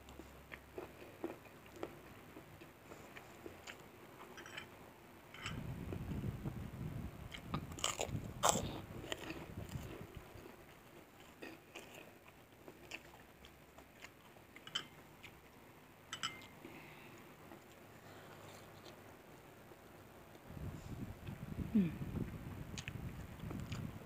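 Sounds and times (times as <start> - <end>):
chewing: 0.1 - 4.6, 7.3 - 15.6, 22.8 - 23.9
crunchy bites of crackers: 7.3 - 10.5.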